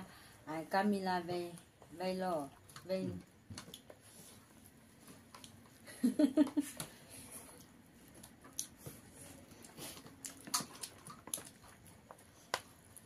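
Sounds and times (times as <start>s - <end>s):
chewing and lip smacks: 7.6s - 13.0s.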